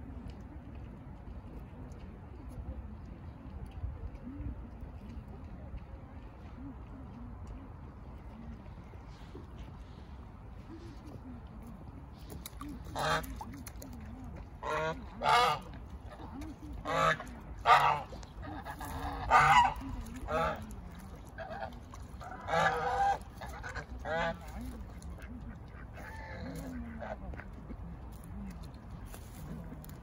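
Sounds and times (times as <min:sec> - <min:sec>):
geese honking: 0:12.9 - 0:13.4, 0:14.6 - 0:15.8, 0:16.8 - 0:20.6, 0:21.4 - 0:24.4.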